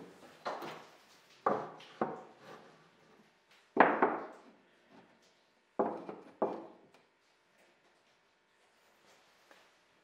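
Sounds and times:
wooden blocks knocking: 3.8 - 4.3, 5.8 - 6.8.

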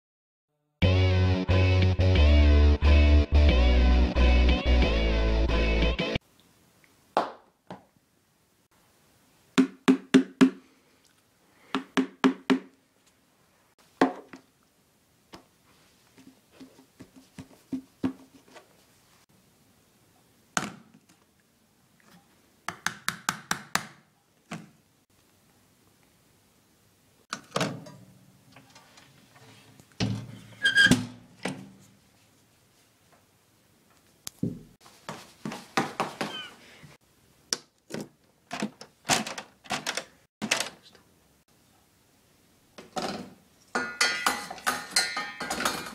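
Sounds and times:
guitar music: 0.8 - 6.2.

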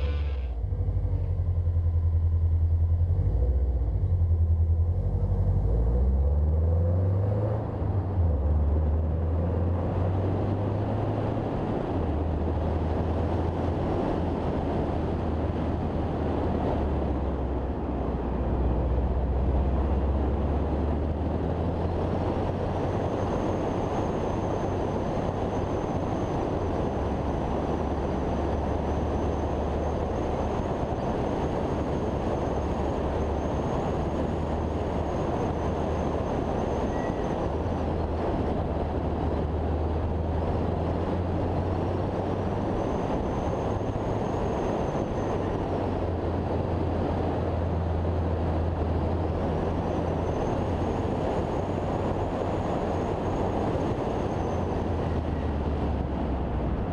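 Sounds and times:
road noise: 0.0 - 56.9
wind noise: 6.6 - 56.9
faint high whine: 22.5 - 38.1.

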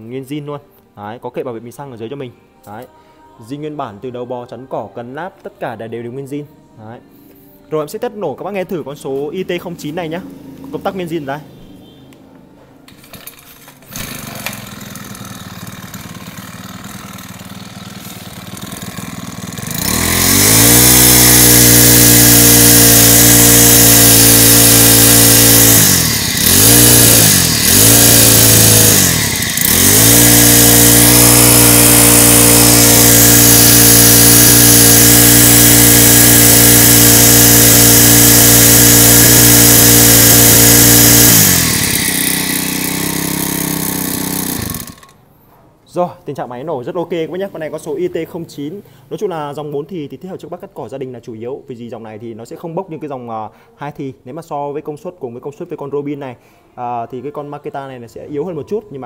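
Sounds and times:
brushcutter engine revving: 12.9 - 45.2.

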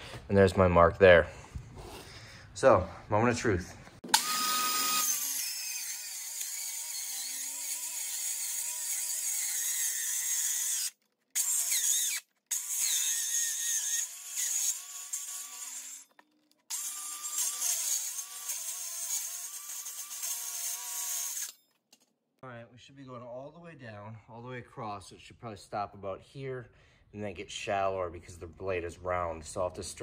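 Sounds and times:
circular saw cutting particleboard: 4.1 - 21.6.

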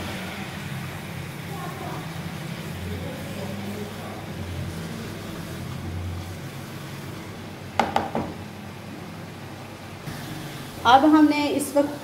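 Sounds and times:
spoon knocking on pan: 7.8 - 8.4.

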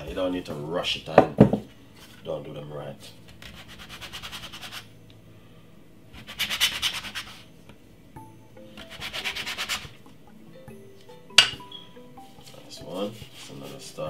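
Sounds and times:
cookie cutter scratching through dough: 3.2 - 4.8, 6.2 - 7.4.

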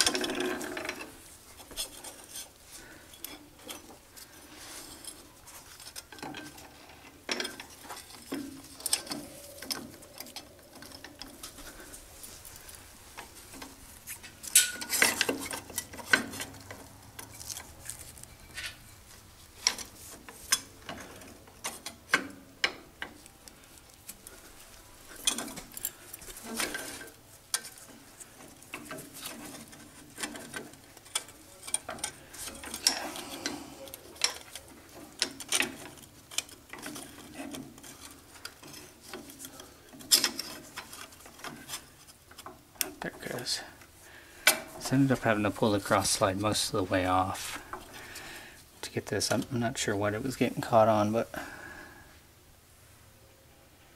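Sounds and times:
metal clinks and knocks: 4.8 - 19.0.

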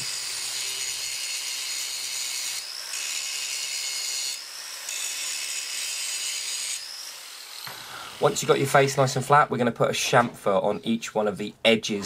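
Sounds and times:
angle grinder grinding steel: 0.0 - 9.0.

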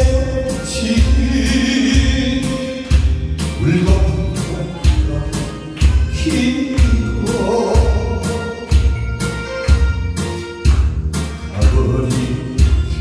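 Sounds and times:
man singing into a microphone: 0.0 - 8.7, 11.5 - 13.0
karaoke backing track: 0.0 - 13.0
low bass beat: 0.0 - 13.0.

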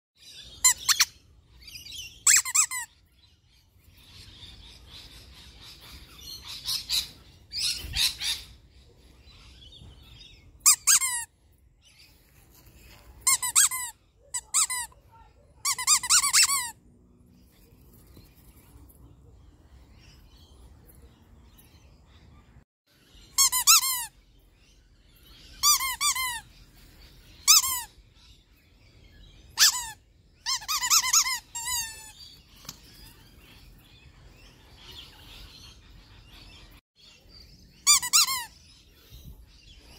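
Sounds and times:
squeaky dog toy squeaks: 0.6 - 1.1, 2.2 - 2.9, 10.6 - 11.3, 13.2 - 15.0, 15.6 - 16.8, 23.4 - 24.1, 25.6 - 26.4, 27.4 - 27.9, 29.6 - 32.2, 37.8 - 38.5.

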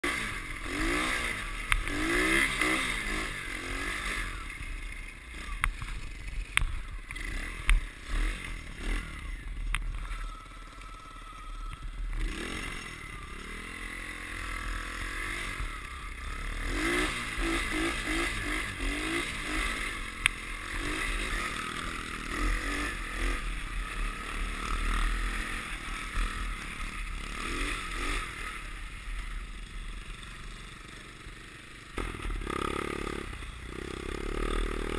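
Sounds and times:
pit bike engine revving: 0.0 - 34.9.

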